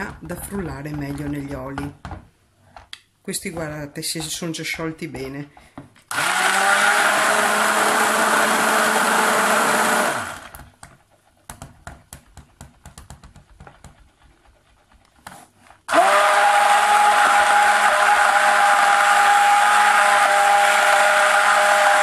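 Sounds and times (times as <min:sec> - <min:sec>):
stick blender motor running: 0:06.1 - 0:10.6, 0:15.9 - 0:22.0
light clicks and taps stirring: 0:10.5 - 0:15.8.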